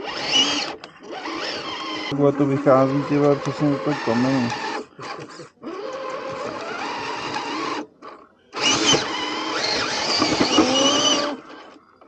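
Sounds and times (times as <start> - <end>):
toy truck motor whining: 0.0 - 12.0.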